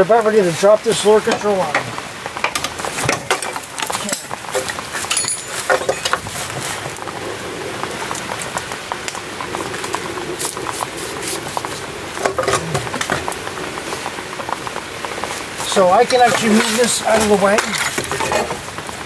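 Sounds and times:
steady hiss: 0:00.0 - 0:19.0
metal parts clinking: 0:05.1 - 0:06.2.

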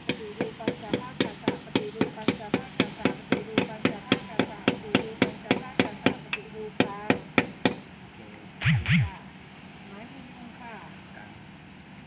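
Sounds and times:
rapid hammer blows: 0:08.6 - 0:09.2
short loud burst: 0:08.6 - 0:09.2.

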